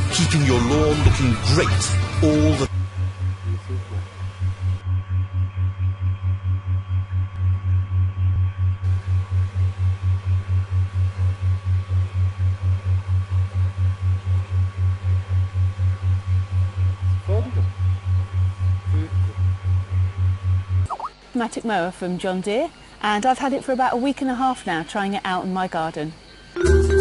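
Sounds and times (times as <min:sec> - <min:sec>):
low throbbing hum: 0:00.0 - 0:20.9.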